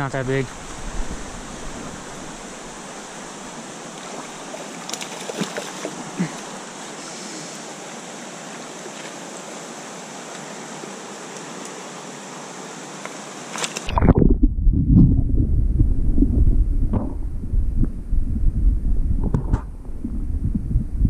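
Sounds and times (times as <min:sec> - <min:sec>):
stream rushing over rocks: 0:00.0 - 0:09.8
fish splashing: 0:01.4 - 0:06.6.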